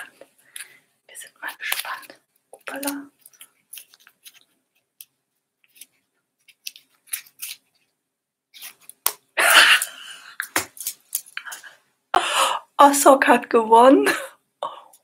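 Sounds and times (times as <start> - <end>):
paper slip crackling and rustling: 1.4 - 9.2, 10.5 - 11.6.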